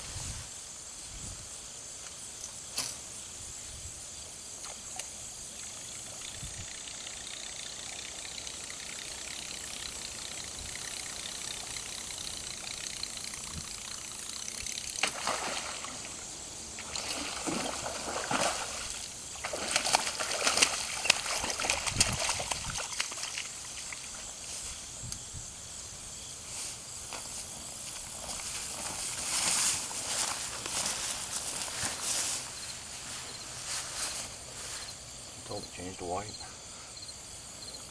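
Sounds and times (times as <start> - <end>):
steady background hiss: 0.0 - 37.9
fish splashing at water surface: 14.8 - 16.2, 16.8 - 24.1.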